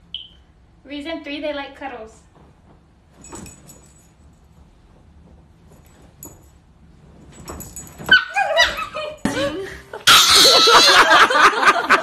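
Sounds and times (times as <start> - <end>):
soft rustling: 2.2 - 9.2
collar jingling: 3.2 - 4.5, 7.2 - 8.9.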